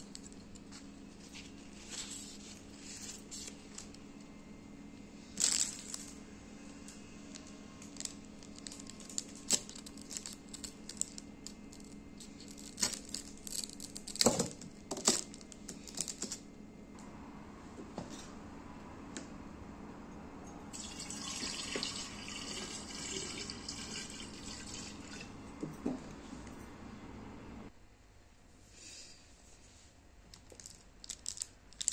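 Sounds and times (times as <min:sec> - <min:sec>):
scissors cutting with crackling foil: 0:07.9 - 0:16.4.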